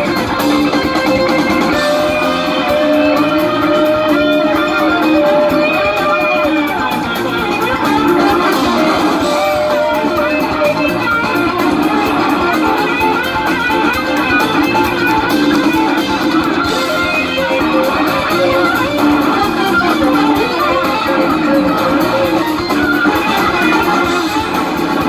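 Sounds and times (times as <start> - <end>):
cymbals keeping a beat: 0.0 - 25.0
drums: 0.0 - 25.0
electric guitars playing lead: 0.0 - 25.0.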